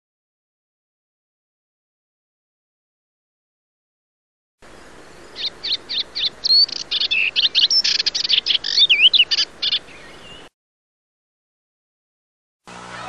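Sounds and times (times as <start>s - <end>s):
small bird chirping: 4.7s - 10.5s.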